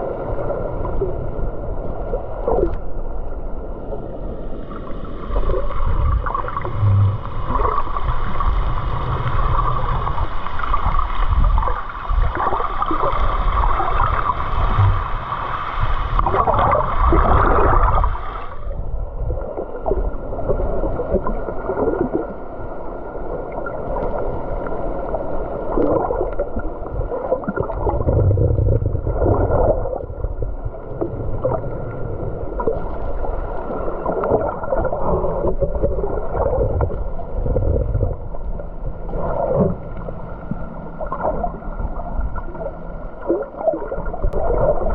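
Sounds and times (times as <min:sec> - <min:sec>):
underwater water sloshing and gurgling: 0:00.0 - 0:44.9
low surges and knocks: 0:05.4 - 0:22.3.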